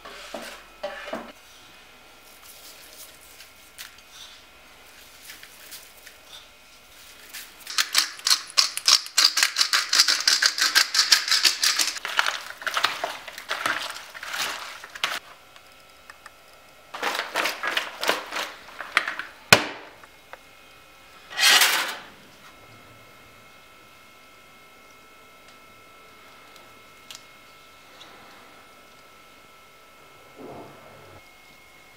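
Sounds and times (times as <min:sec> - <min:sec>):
hands mixing food crackling: 0:06.9 - 0:19.4
short scrape: 0:21.3 - 0:22.1.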